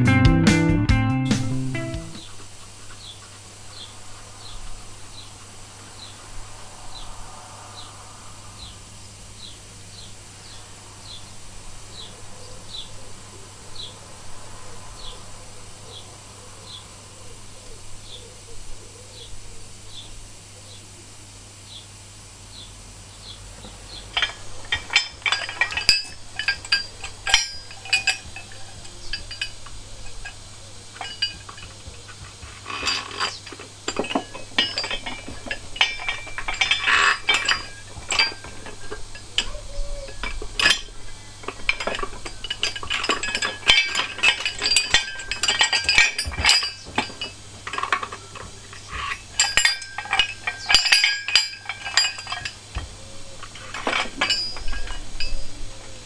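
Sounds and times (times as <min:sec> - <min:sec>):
metal tools clinking: 0:23.6 - 0:56.0.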